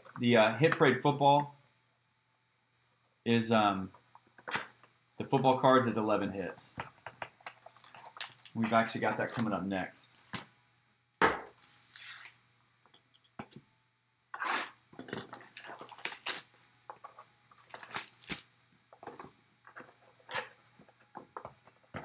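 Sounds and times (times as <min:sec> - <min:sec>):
shrink wrap tearing and crinkling: 0:07.4 - 0:09.0, 0:14.4 - 0:18.6.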